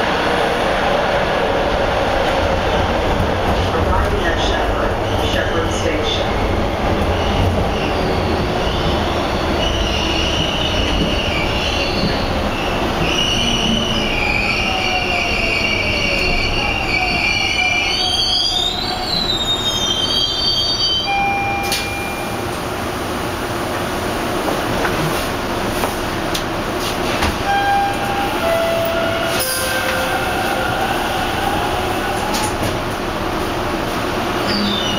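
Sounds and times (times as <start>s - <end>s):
subway wheels rumbling: 0.0s - 34.9s
high-pitched wheel squeal: 7.9s - 21.2s, 34.4s - 34.9s.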